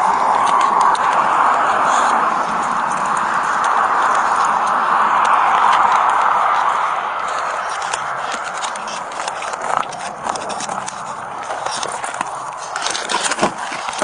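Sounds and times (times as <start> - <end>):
footsteps scuffing and clicking: 0.0 - 14.0.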